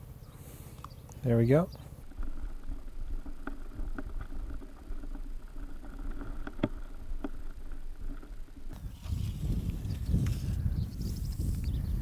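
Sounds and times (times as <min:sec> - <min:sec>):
faint clicks and ticks: 0:02.0 - 0:08.8.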